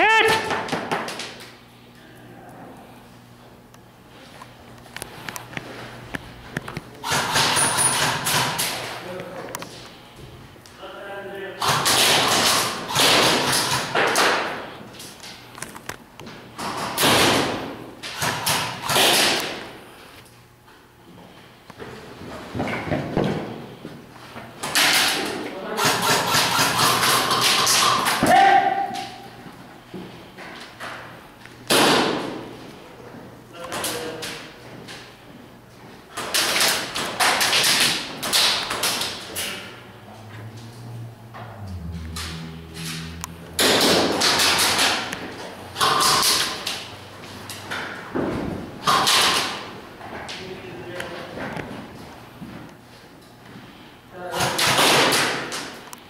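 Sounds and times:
airsoft guns firing: 7.0 - 8.8, 11.6 - 14.6, 16.6 - 19.6, 25.8 - 28.3, 31.7 - 32.3, 48.8 - 49.6, 54.4 - 55.5.

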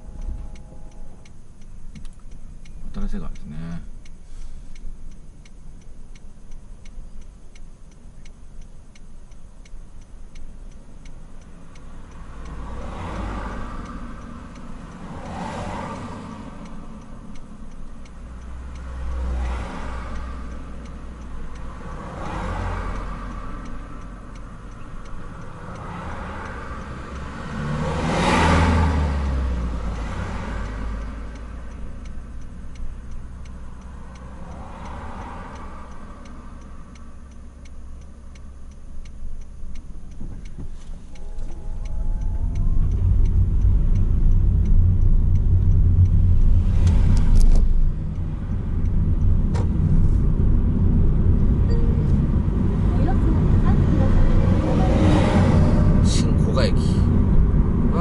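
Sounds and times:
turn signal ticking: 0.0 - 58.0
vehicles passing: 0.0 - 58.0.

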